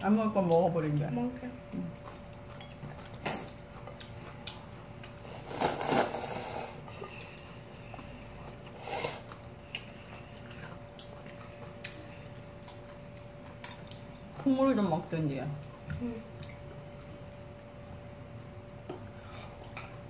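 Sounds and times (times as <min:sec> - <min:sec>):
noodles slurped: 0:05.2 - 0:06.8.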